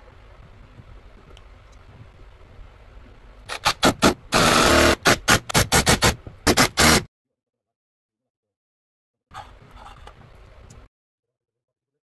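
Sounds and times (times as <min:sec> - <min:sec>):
cordless drill bursts: 0:04.3 - 0:07.1.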